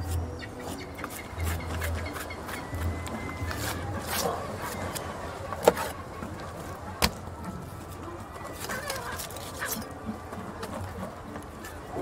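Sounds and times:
knife scraping and cutting fish: 0:03.5 - 0:05.1.

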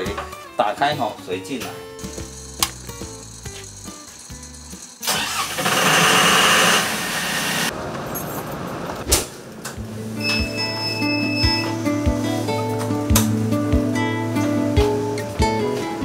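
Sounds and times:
background music: 0:00.0 - 0:06.6, 0:09.8 - 0:16.0.

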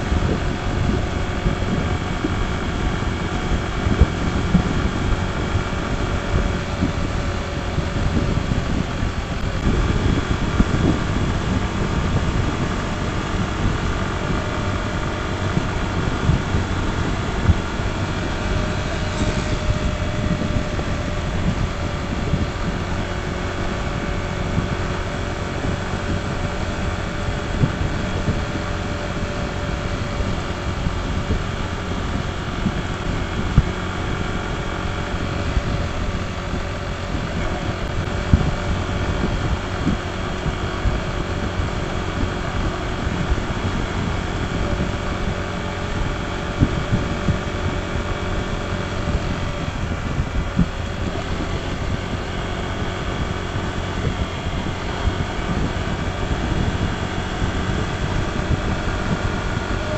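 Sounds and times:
scooter engine running: 0:00.0 - 0:59.9
wind buffeting the microphone: 0:00.0 - 0:59.9.

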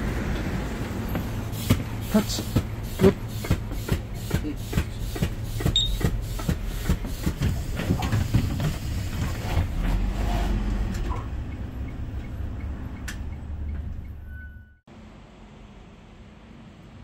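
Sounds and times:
bus engine and road rumble: 0:00.0 - 0:17.0
short high beep: 0:05.8 - 0:06.0, 0:14.2 - 0:14.8.

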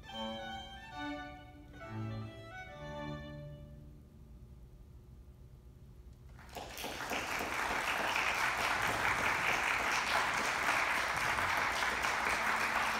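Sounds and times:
audience applauding: 0:06.3 - 0:12.9.

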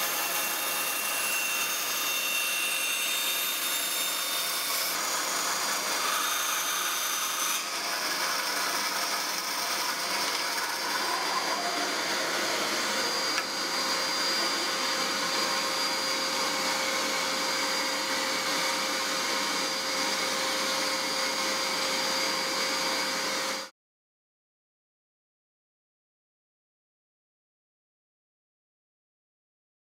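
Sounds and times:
band saw cutting wood: 0:00.0 - 0:23.7.

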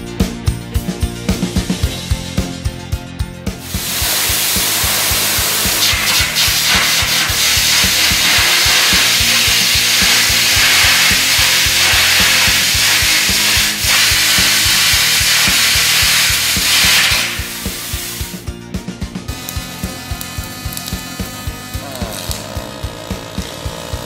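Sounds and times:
background music with beat: 0:00.0 - 0:24.0
arc gouging air jet hiss: 0:03.6 - 0:18.4, 0:19.3 - 0:24.0.

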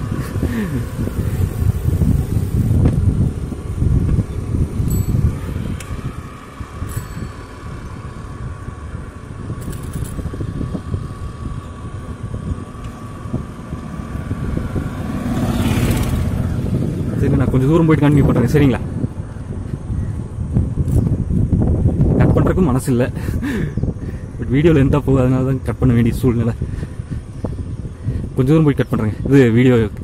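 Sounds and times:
motor vehicle passing: 0:00.0 - 0:22.0
road rumble: 0:00.0 - 0:30.0
wind buffeting microphone: 0:00.0 - 0:30.0.

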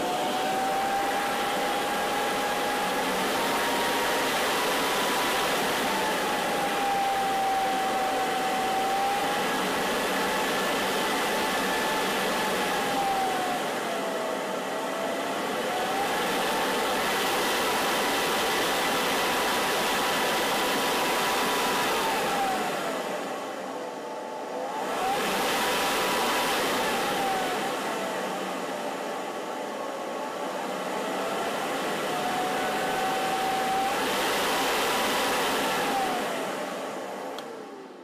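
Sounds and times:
blower motor whining: 0:00.0 - 0:38.0.

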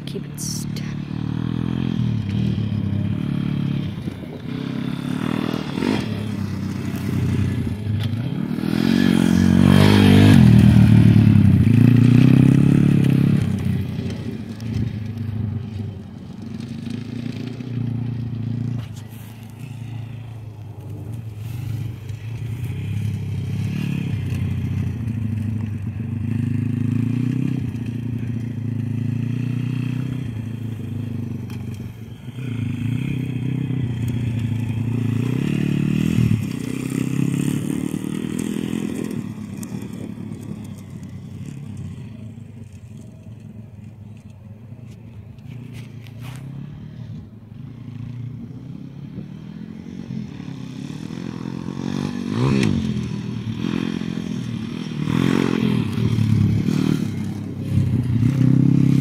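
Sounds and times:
dirt bike engine: 0:00.0 - 0:59.0.

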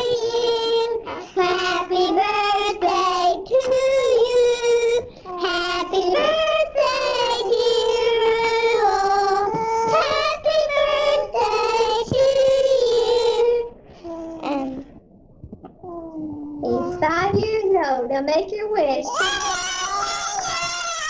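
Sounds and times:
girl singing into microphone: 0:00.0 - 0:13.7.

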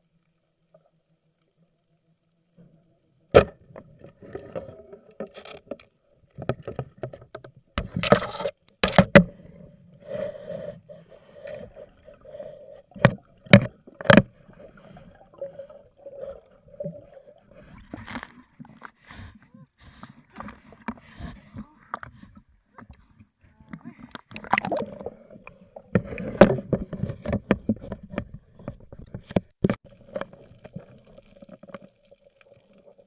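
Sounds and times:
underwater knocks and clicks: 0:03.3 - 0:09.5, 0:12.9 - 0:15.0, 0:20.0 - 0:32.7.

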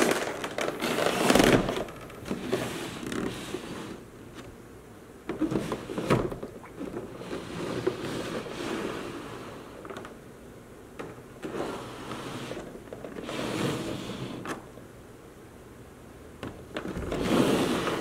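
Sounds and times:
plastic tray crinkling: 0:00.0 - 0:03.4.

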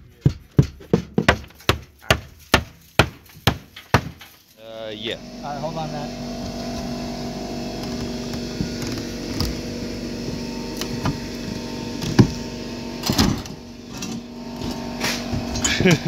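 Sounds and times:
steady low hum: 0:04.8 - 0:16.0
wood and nails creaking: 0:07.6 - 0:12.4.

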